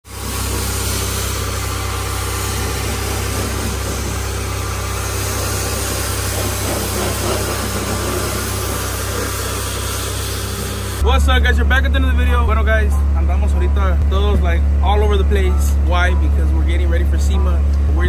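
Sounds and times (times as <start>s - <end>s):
water jet spraying: 0.0s - 13.6s
pressure washer running: 0.0s - 18.0s.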